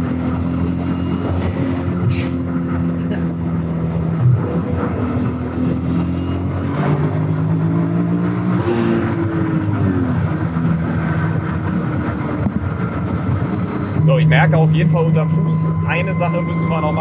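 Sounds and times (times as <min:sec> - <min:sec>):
car engine accelerating: 0:00.0 - 0:17.0
turbo whine: 0:09.6 - 0:17.0.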